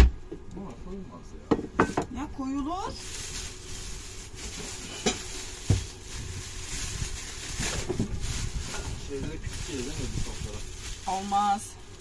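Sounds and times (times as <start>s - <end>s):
plastic bag crinkling: 2.6s - 12.0s.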